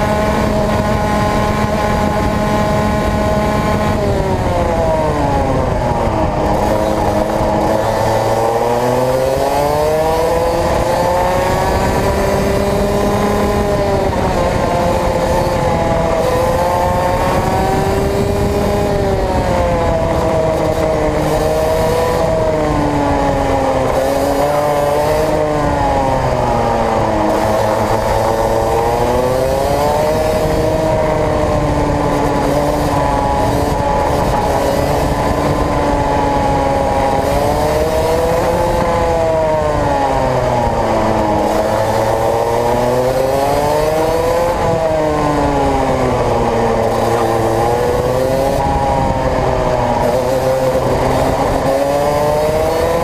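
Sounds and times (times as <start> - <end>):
kart engine revving: 0.0 - 53.0.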